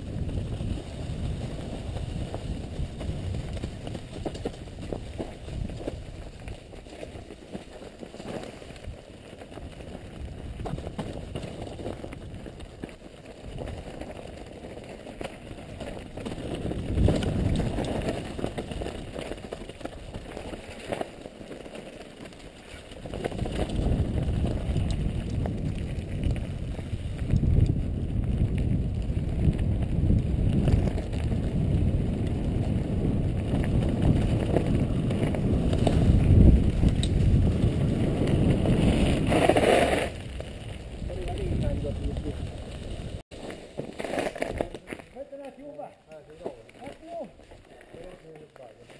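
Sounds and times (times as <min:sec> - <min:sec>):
wind on microphone: 0:00.0 - 0:06.5, 0:16.4 - 0:19.2, 0:23.0 - 0:43.2
bike tyres rumbling over gravel: 0:00.0 - 0:48.9.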